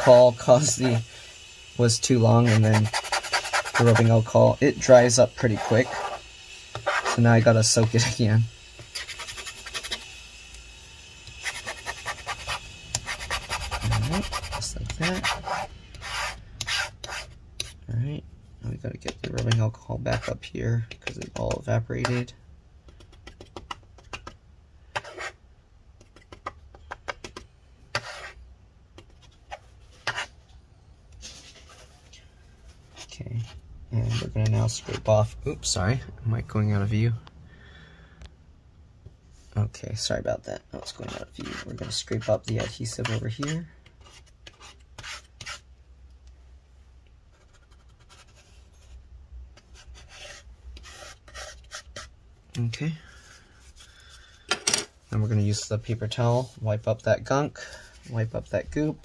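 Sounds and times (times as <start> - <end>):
scratchy tool strokes: 0.0 - 10.2, 11.2 - 17.8, 24.9 - 25.4, 27.9 - 28.4, 29.1 - 30.4, 32.8 - 35.2, 40.8 - 45.7, 49.6 - 52.2
tool scraping adhesive: 2.0 - 4.2, 4.8 - 10.1, 11.3 - 17.8.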